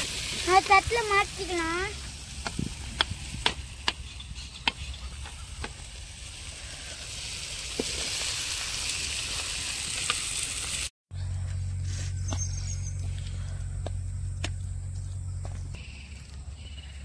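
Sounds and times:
pan sizzling: 0.0s - 3.8s, 4.7s - 10.9s.

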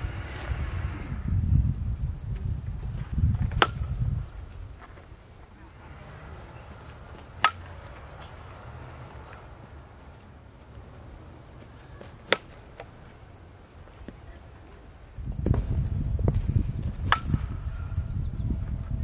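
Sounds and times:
low background rumble: 0.0s - 12.0s, 14.2s - 19.0s
bat cracking softball: 3.1s - 5.1s, 6.8s - 9.4s, 12.0s - 13.1s, 15.4s - 17.9s.

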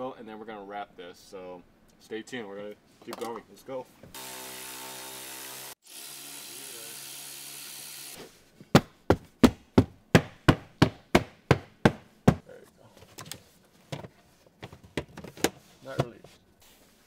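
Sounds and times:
cordless drill running: 4.1s - 8.2s
sharp knocks: 8.7s - 12.5s.

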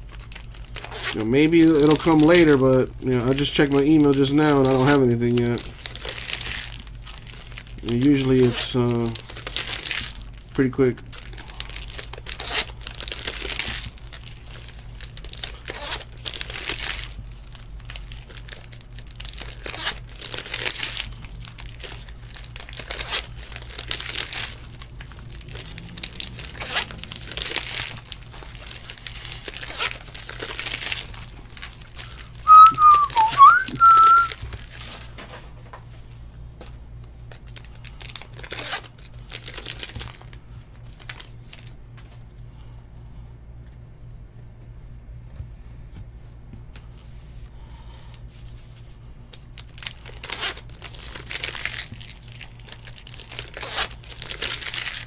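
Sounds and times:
wrapper crinkling: 0.0s - 35.2s, 37.3s - 41.8s, 48.4s - 55.0s
cards shuffled by hand: 32.4s - 35.0s
person whistling: 32.5s - 34.3s.

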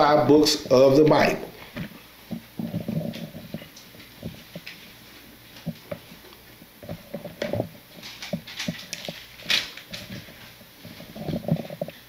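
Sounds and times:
book pages rustling: 6.9s - 12.0s.

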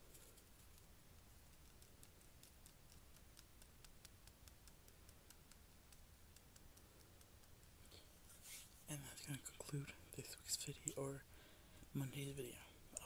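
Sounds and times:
fingernails ticking: 1.6s - 7.9s.

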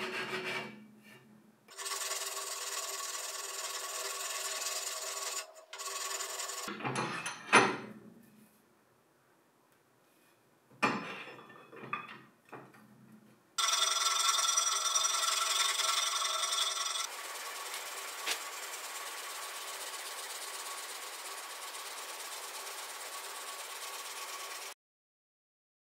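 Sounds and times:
power tool whining: 13.6s - 24.7s.

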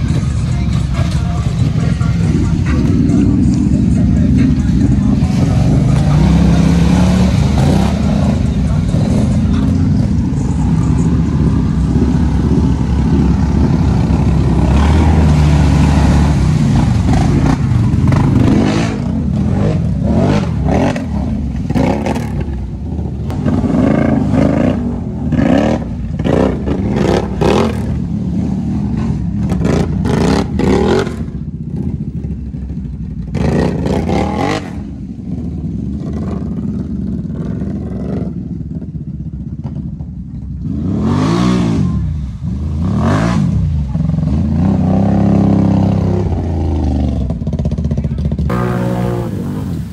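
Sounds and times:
atv engines revving: 0.0s - 49.9s.

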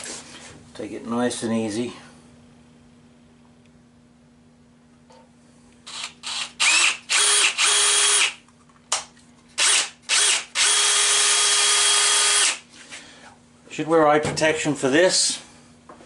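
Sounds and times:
cordless drill drilling into metal: 5.9s - 8.4s, 9.6s - 12.6s.

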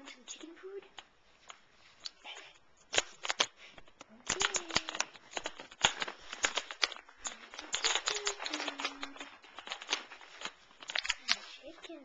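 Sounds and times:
cat crunching dry treats: 2.9s - 11.9s.

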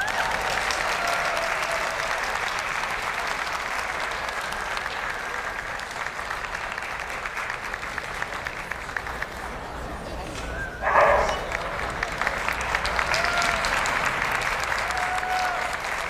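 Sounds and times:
crowd applauding: 0.0s - 16.0s.

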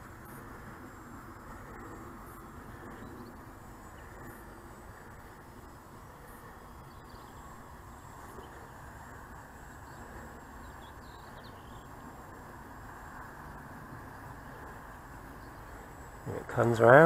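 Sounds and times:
faint bird chirps: 0.1s - 12.4s.

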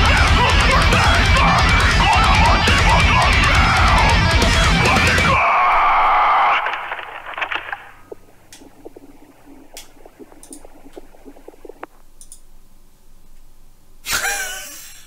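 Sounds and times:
heavy metal song: 0.0s - 5.4s
faint clicks and scratches: 6.5s - 12.5s.

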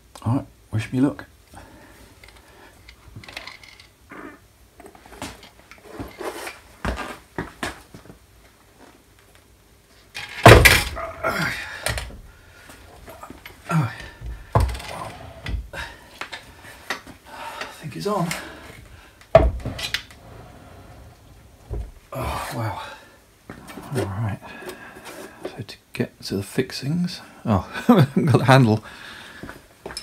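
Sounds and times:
heavy metal table thumping down: 10.3s - 12.2s, 19.4s - 20.8s.

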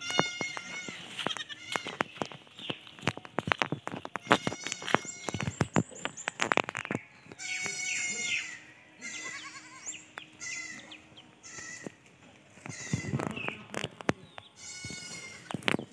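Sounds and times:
goat bleating: 0.0s - 2.2s, 4.1s - 5.8s, 6.9s - 13.8s, 14.6s - 15.7s.

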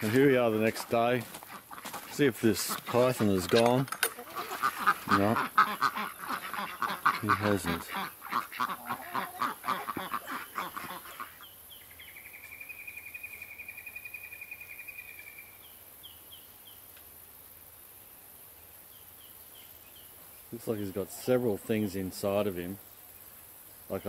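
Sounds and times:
ducks quacking: 0.0s - 11.4s.

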